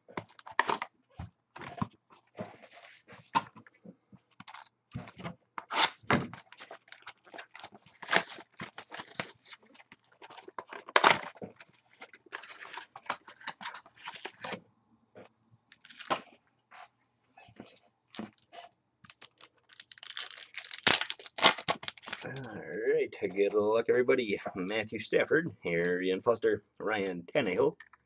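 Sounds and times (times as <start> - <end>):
cardboard and wrapper rustling: 0.2 - 3.7, 4.3 - 14.6, 15.7 - 16.4, 17.5 - 22.5.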